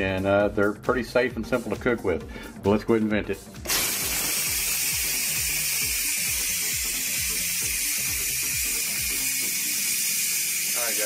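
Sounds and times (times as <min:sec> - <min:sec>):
steam valve hissing: 0:03.7 - 0:11.0.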